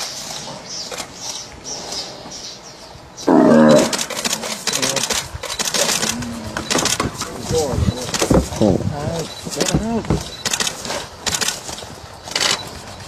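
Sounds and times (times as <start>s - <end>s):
snarling animal call: 3.2s - 5.0s, 5.8s - 8.9s
rapid sharp clicks: 3.8s - 7.3s, 9.5s - 12.7s.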